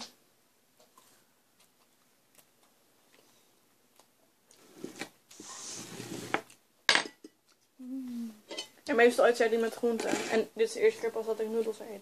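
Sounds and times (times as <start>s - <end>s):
wet chewing: 0.8s - 5.4s.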